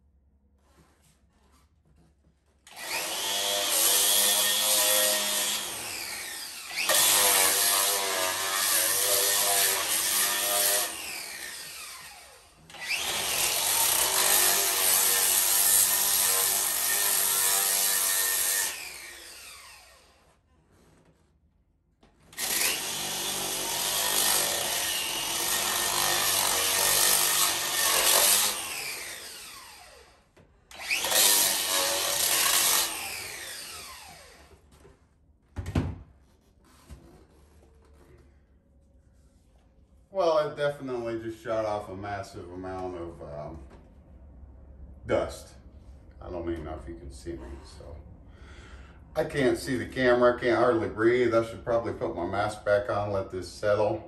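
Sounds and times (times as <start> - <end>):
angle grinder grinding wall: 0.6 - 35.3.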